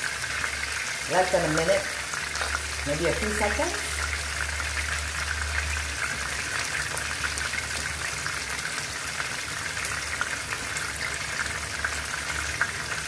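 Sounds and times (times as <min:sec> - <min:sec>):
chicken frying in hot oil: 0:00.0 - 0:13.0.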